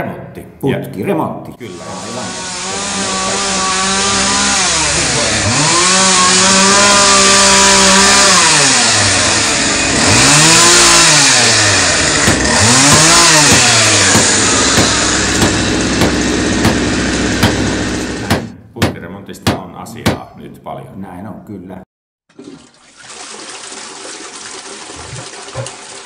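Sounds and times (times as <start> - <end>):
power tool motor whining: 1.7 - 18.5
hammer blows: 1.8 - 20.3.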